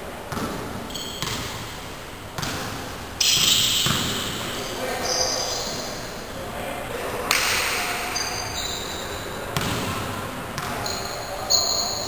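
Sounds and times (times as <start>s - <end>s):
basketball hitting in echoing gym: 0.0s - 6.3s, 7.3s - 12.0s
indistinct voices: 4.3s - 12.0s.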